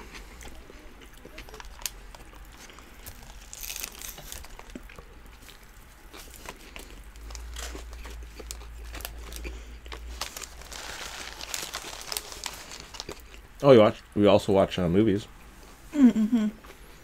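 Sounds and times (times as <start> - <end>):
chewing food: 0.0 - 13.6
paper wrappers crinkling: 1.4 - 4.8, 6.2 - 13.3.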